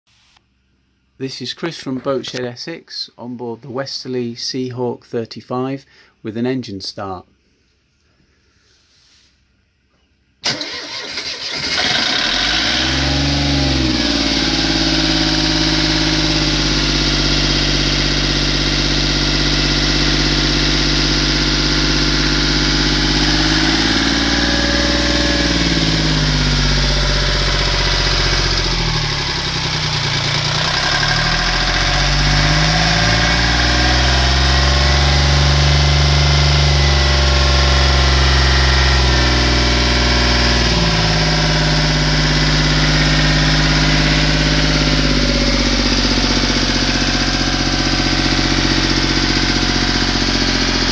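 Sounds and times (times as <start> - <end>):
diesel engine cranking: 10.4 - 50.9
diesel engine running: 10.4 - 50.9.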